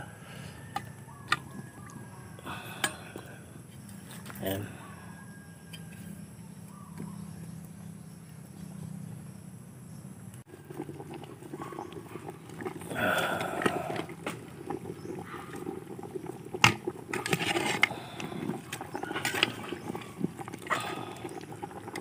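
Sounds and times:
stew bubbling at hard boil: 0:00.0 - 0:05.0, 0:10.2 - 0:22.0.

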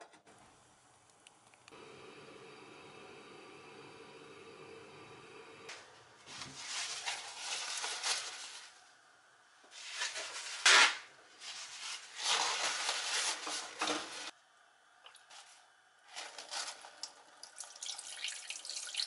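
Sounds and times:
paper towel rustling and crinkling: 0:06.2 - 0:09.0, 0:09.7 - 0:14.3.

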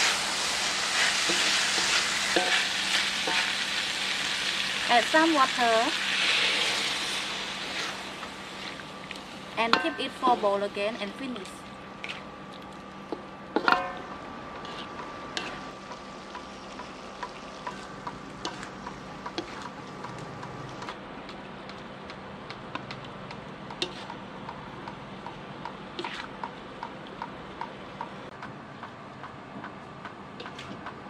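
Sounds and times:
metal spatula scraping a wok: 0:00.0 - 0:03.6, 0:14.6 - 0:15.7, 0:26.0 - 0:26.3
food sizzling: 0:00.0 - 0:13.2, 0:14.6 - 0:20.9.

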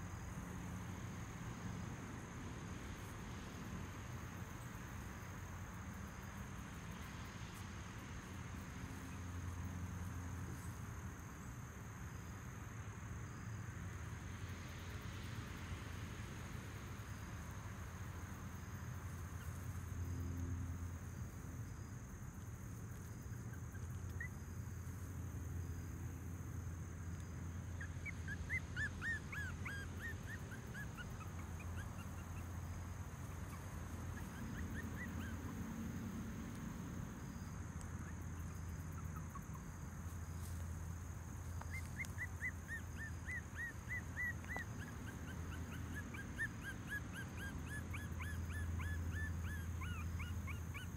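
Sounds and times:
puppy whimpering: 0:27.8 - 0:32.5, 0:33.5 - 0:35.6, 0:41.7 - 0:50.9.

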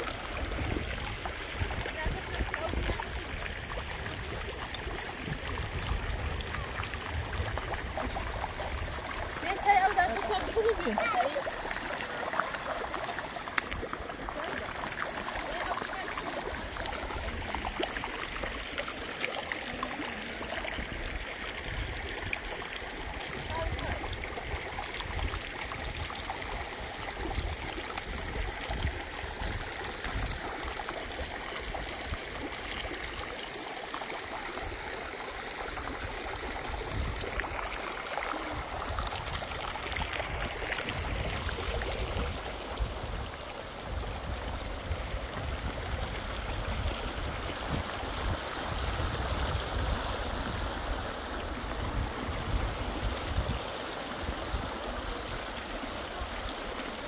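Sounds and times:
water flowing steadily: 0:00.0 - 0:57.0.

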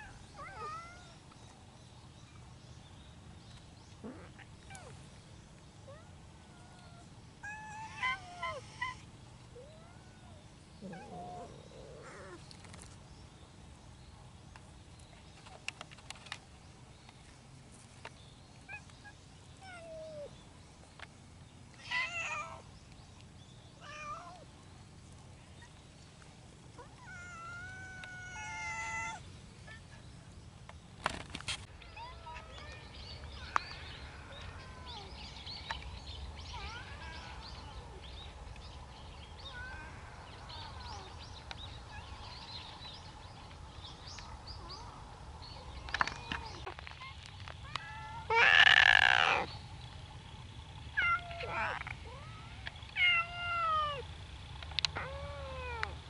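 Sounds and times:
cats meowing: 0:00.0 - 0:01.2, 0:05.9 - 0:12.4, 0:21.8 - 0:22.6, 0:23.8 - 0:24.5, 0:26.7 - 0:29.2, 0:36.4 - 0:38.0, 0:39.4 - 0:41.2, 0:47.6 - 0:49.5, 0:51.0 - 0:54.1, 0:54.8 - 0:56.0.

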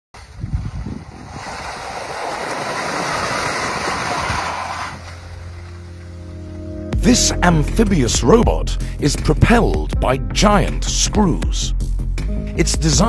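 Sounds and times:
water and slush churning: 0:00.2 - 0:05.6.

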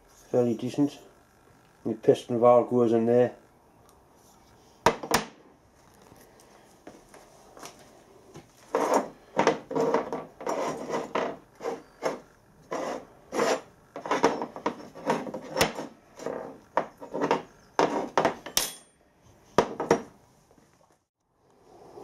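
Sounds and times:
metal rubbing and scraping: 0:08.6 - 0:18.9.

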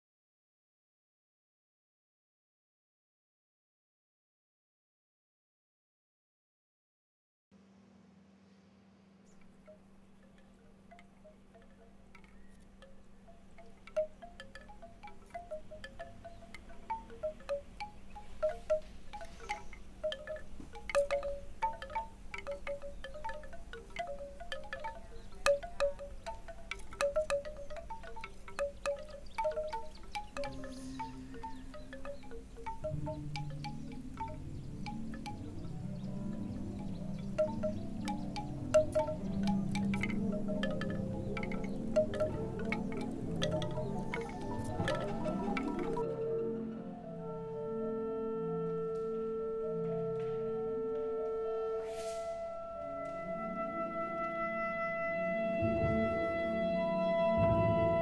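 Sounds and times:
wind chimes tinkling: 0:09.4 - 0:46.7.

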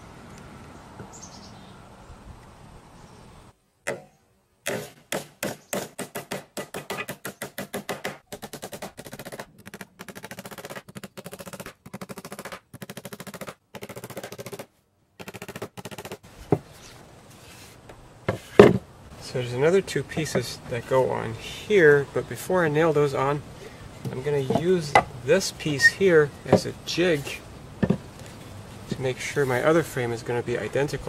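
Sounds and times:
hammer driving nails into wood: 0:03.9 - 0:16.2.

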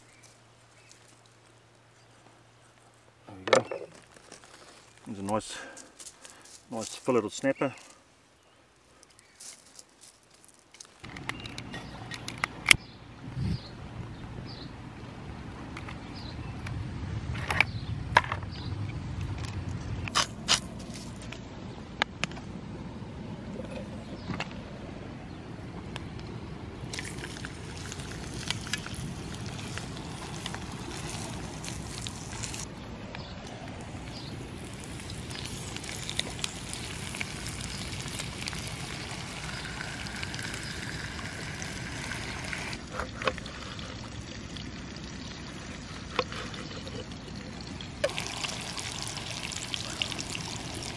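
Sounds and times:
fish sizzling in a pan: 0:34.0 - 0:42.8, 0:48.1 - 0:50.9.

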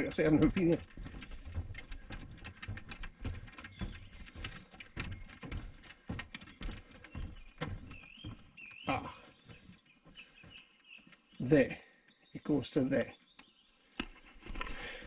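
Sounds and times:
bird chirping: 0:00.0 - 0:15.0
footsteps on wooden boardwalk: 0:00.0 - 0:15.0.

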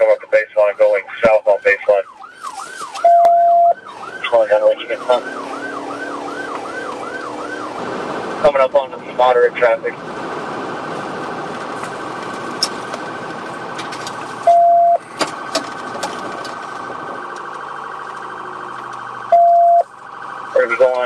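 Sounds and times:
police siren warbling: 0:00.0 - 0:21.0
low engine hum: 0:02.1 - 0:20.9
loud beeps: 0:03.0 - 0:03.8, 0:14.4 - 0:15.0, 0:19.3 - 0:19.9.

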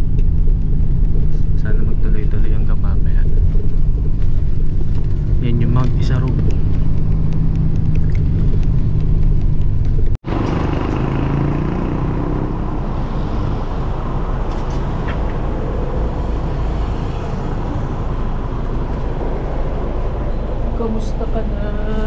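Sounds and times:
bus engine and road noise: 0:00.0 - 0:22.0.

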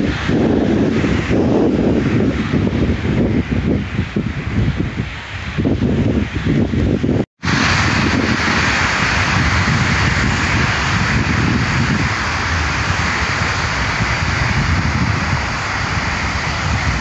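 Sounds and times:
wind rumbling on microphone: 0:00.0 - 0:17.0
distant city traffic hiss: 0:07.4 - 0:17.0.

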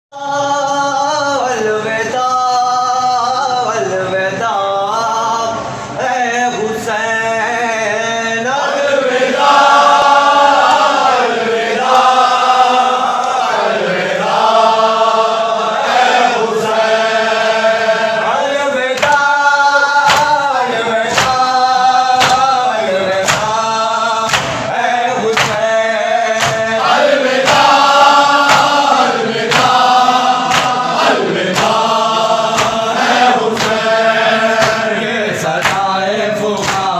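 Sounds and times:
men chanting in unison: 0:00.2 - 0:36.9
rhythmic hand strikes: 0:18.9 - 0:36.9.

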